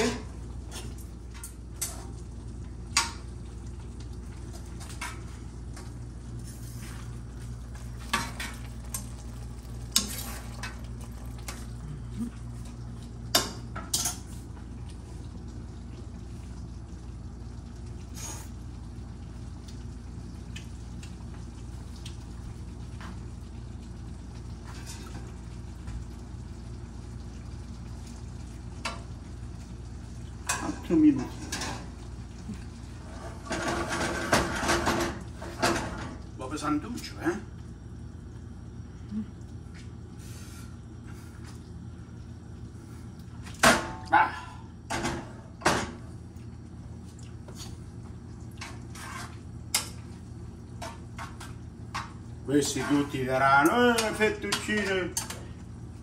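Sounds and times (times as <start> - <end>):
soft sizzle: 0.0 - 56.0
utensil stirring in a pan: 46.9 - 56.0.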